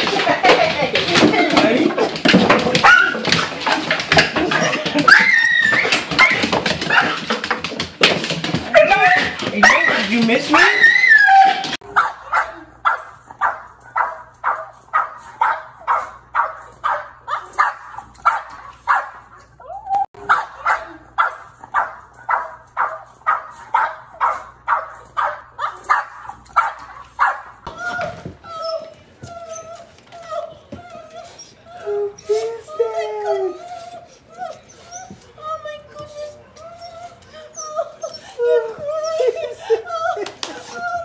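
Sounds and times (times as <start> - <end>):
dog barking excitedly: 0.1 - 19.4, 20.2 - 28.2
dog whining: 5.0 - 7.2, 8.7 - 11.8, 27.6 - 41.0.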